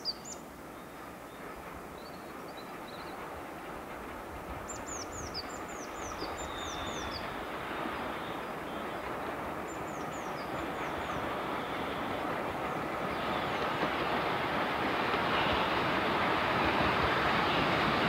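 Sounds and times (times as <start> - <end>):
steam locomotive running: 0.3 - 18.0
bird singing: 4.7 - 7.4, 8.0 - 13.9.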